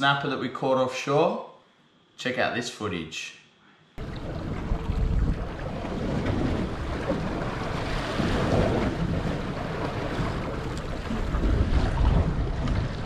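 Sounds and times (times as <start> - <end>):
water splashing against boat hull: 4.0 - 13.0
wind buffeting microphone: 4.0 - 13.0.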